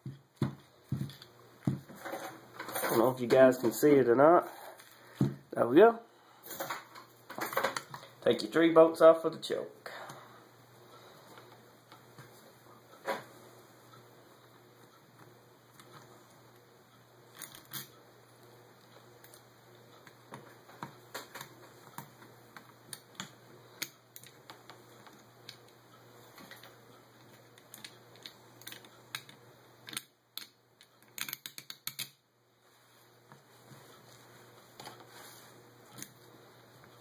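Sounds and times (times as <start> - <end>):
metal parts and screwdriver clicking: 27.6 - 32.2.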